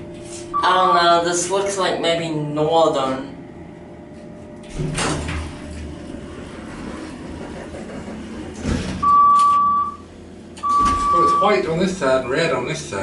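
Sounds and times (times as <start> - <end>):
elevator hum: 0.0 - 13.0
elevator doors sliding open: 4.6 - 9.9, 10.6 - 11.6
electronic beep: 9.0 - 10.0, 10.6 - 11.6.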